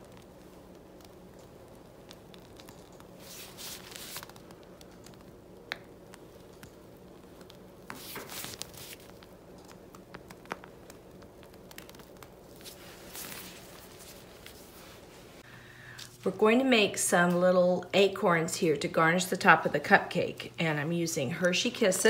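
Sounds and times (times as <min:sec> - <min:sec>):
pastry bag rustling and squishing: 0:00.0 - 0:15.4.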